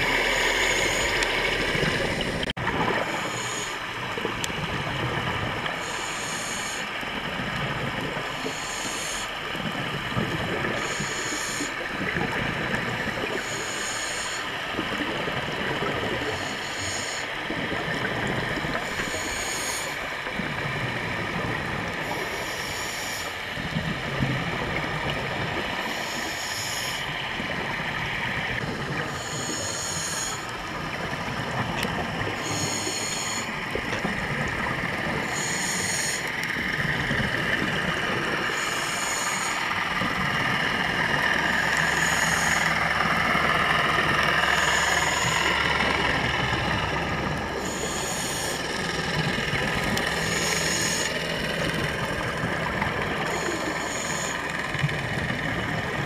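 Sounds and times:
diver breathing through regulator: 0.0 - 3.9, 5.8 - 7.0, 8.3 - 9.5, 10.8 - 11.8, 13.3 - 14.9, 16.2 - 17.5, 18.6 - 20.2, 22.0 - 23.5, 25.8 - 27.2, 28.8 - 30.7, 31.8 - 55.9
underwater water noise: 0.0 - 56.0.

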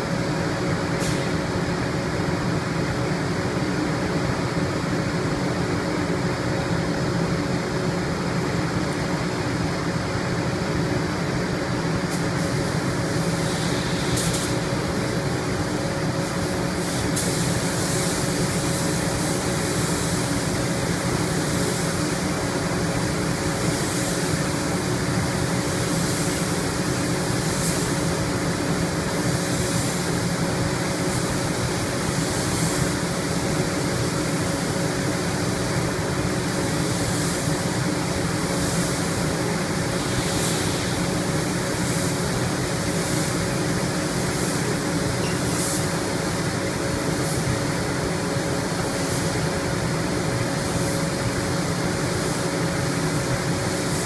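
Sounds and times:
paint spray gun hissing: 12.1 - 15.6, 16.2 - 22.3, 30.8 - 34.5, 35.1 - 47.8, 48.8 - 54.0.

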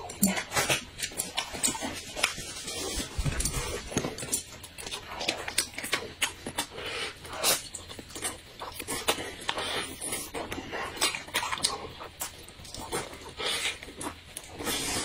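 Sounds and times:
noodles slurped and chewed: 0.0 - 15.0.

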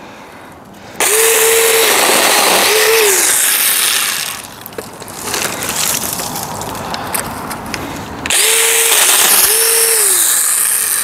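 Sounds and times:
mini chainsaw cutting wood: 1.0 - 4.6, 8.3 - 11.0.

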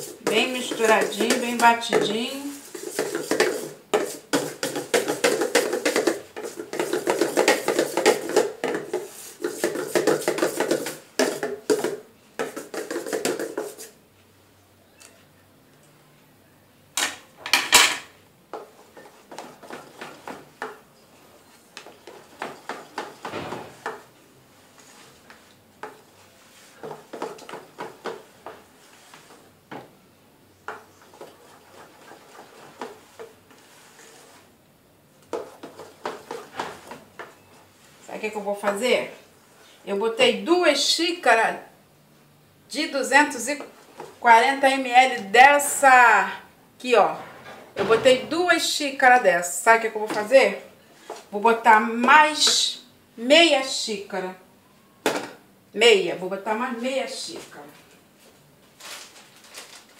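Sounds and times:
spoon beating batter in metal bowl: 0.0 - 14.0, 18.5 - 24.1, 24.8 - 29.5, 30.6 - 34.4, 35.2 - 37.6.

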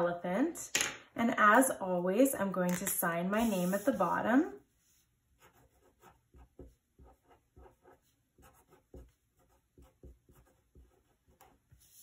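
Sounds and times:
pen scratching on paper: 3.4 - 4.2, 5.4 - 12.0.

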